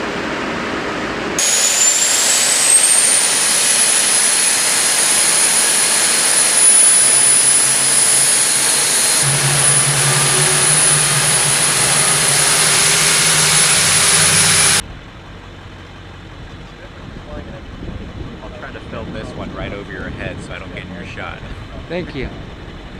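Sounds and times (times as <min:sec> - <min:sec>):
jet engines whining: 0:01.4 - 0:14.8
low hum: 0:04.6 - 0:14.8.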